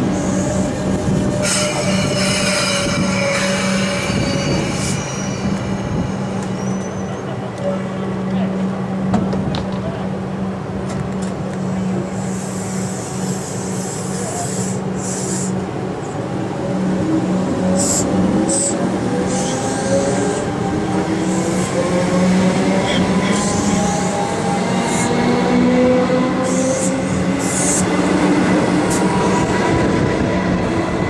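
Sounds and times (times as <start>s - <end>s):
electric train pulling out: 0.0s - 7.7s.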